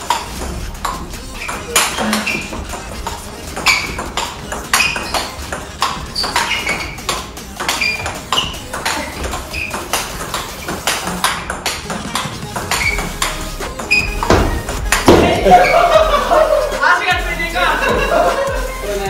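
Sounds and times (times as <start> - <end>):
table tennis ball clicks: 3.6 - 15.2.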